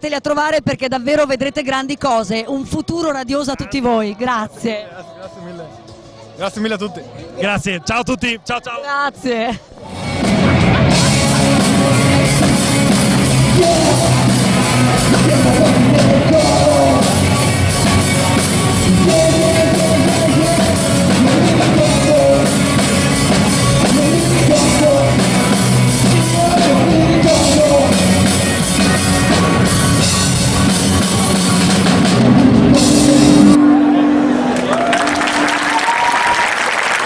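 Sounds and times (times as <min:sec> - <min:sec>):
rock band playing: 0:09.8 - 0:36.3.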